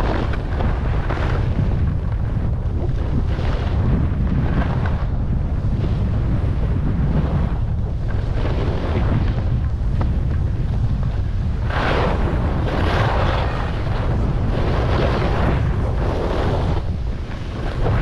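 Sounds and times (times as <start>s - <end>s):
wind buffeting microphone: 0.0s - 18.0s
ski edges scraping snow: 11.6s - 18.0s.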